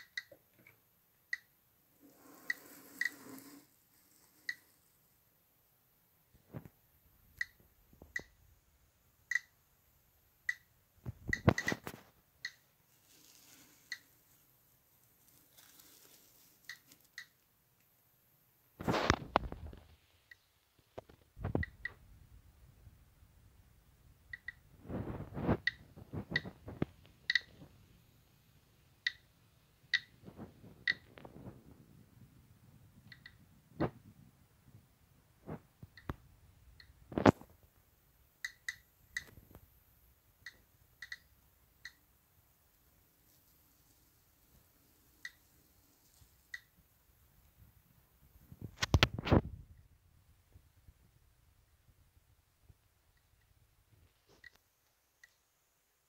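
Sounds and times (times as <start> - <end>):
geiger counter clicking: 0.0 - 0.5, 1.3 - 1.6, 7.4 - 8.4, 9.3 - 9.5, 10.4 - 12.7, 24.3 - 24.6, 25.5 - 27.6, 29.0 - 29.3, 29.9 - 30.2, 30.8 - 31.3, 33.0 - 33.5, 38.4 - 39.4, 40.4 - 42.0
radiation counter beeping clicks: 30.8 - 31.1, 40.5 - 42.0.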